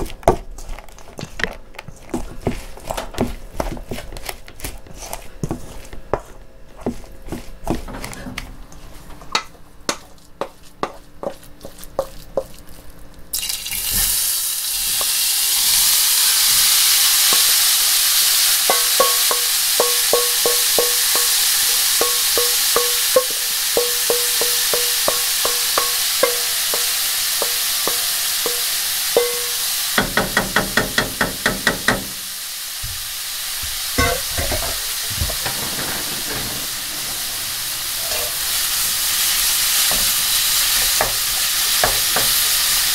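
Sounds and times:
spatula tapping and scraping pan: 0.0 - 8.5, 9.3 - 12.6, 18.6 - 32.2, 34.0 - 36.6, 39.8 - 42.5
knife chopping on cutting board: 9.9 - 12.5
food sizzling in hot pan: 13.3 - 42.9.

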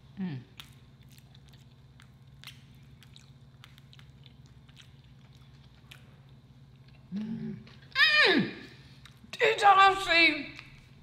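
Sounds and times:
soft chewing: 0.0 - 8.0, 8.8 - 9.3
steady low hum: 0.0 - 11.0.

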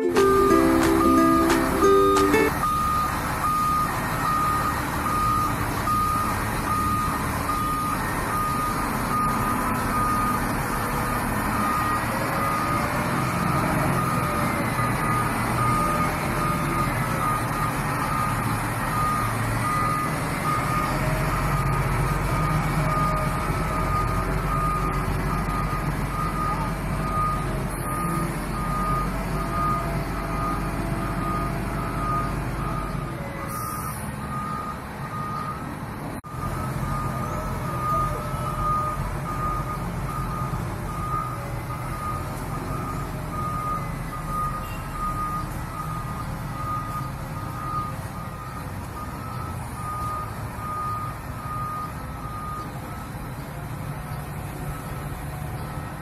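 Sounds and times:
reversing alarm beeping: 0.0 - 33.0, 33.6 - 35.6, 36.3 - 52.8
diesel engine running: 0.0 - 33.1.

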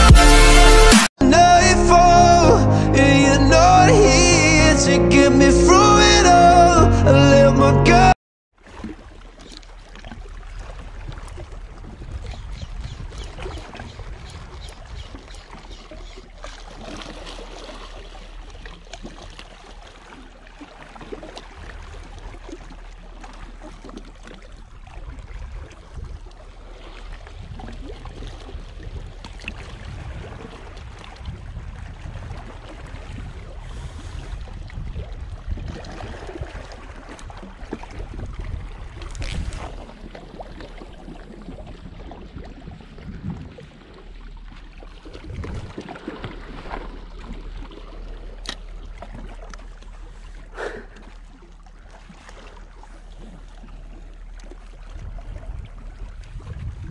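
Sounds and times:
wind rumbling on microphone: 10.1 - 16.1, 21.1 - 23.8, 24.5 - 51.0, 53.2 - 56.9.

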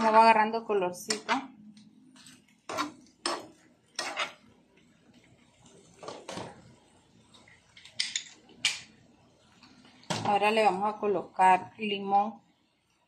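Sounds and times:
metal spoon scraping a frying pan: 2.6 - 4.5.

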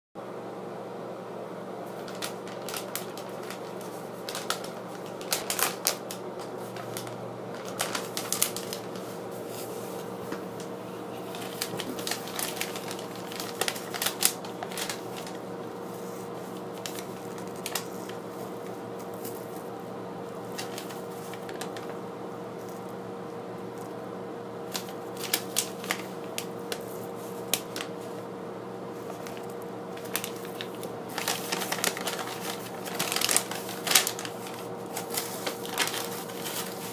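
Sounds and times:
steady background hum: 0.2 - 36.9
paper bag crinkling: 1.8 - 23.0, 24.6 - 28.3, 28.9 - 36.9.

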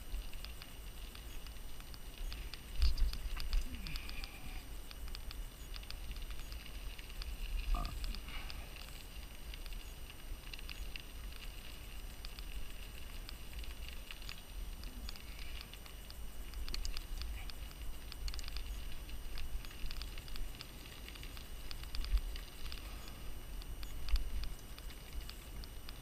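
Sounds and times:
low rumble of vibration and wind: 0.0 - 26.0.

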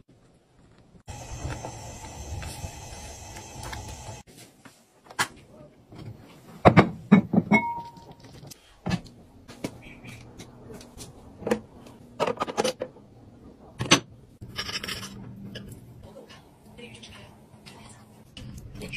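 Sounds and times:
dishes knocking and clattering: 5.9 - 9.0, 11.4 - 13.0, 13.7 - 15.8.

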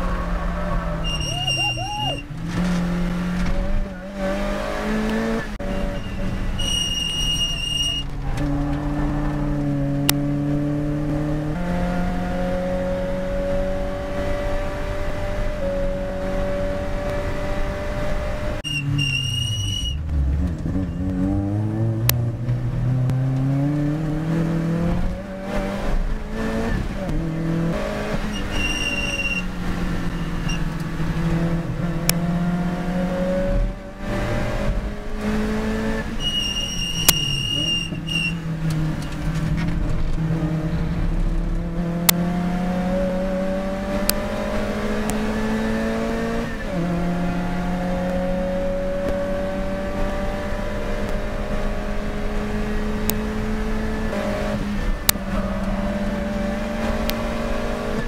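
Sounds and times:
race car engine revving: 0.0 - 58.0
high steady squeal: 0.1 - 2.3, 5.6 - 8.1, 18.6 - 20.0, 28.3 - 30.7, 36.2 - 38.4.

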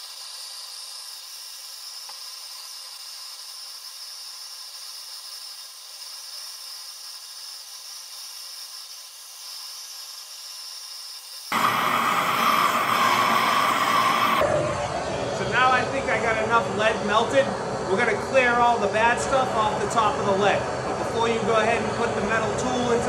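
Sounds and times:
gas torch hissing: 0.0 - 14.8.

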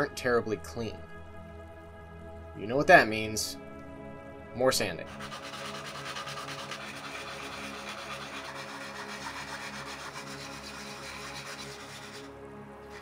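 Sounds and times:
file rasping on plastic: 5.1 - 12.3.

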